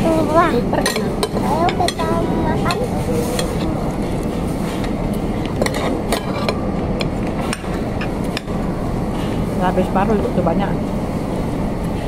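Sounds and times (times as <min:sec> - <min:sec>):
restaurant background noise: 0:00.0 - 0:12.0
cutlery clinking on plates: 0:05.6 - 0:06.6.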